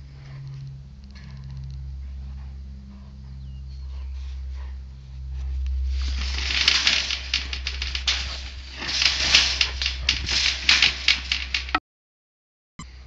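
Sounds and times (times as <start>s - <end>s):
wire-mesh panels rattling: 5.8s - 11.8s.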